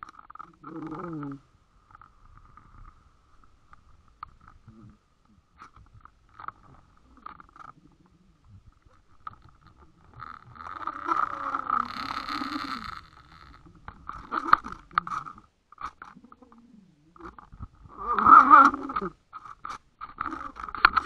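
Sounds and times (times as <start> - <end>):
muffled underwater rumble: 0.0 - 21.0
clicks and scrapes: 5.6 - 16.6, 17.2 - 21.0.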